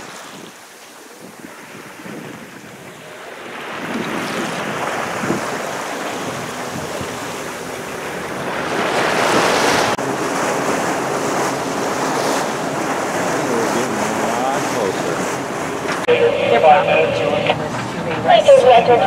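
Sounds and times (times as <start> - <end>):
wind buffeting microphone: 0.0 - 16.1
water rushing along boat hull: 0.0 - 19.0.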